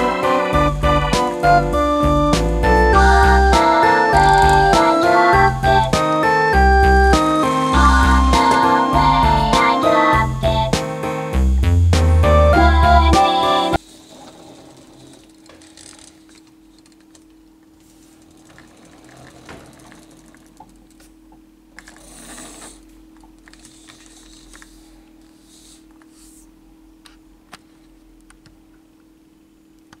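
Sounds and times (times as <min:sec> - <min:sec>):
faint steady hum: 0:12.6 - 0:30.0
plastic toy clicking and rattling: 0:14.8 - 0:17.3, 0:18.2 - 0:21.0, 0:23.4 - 0:24.8.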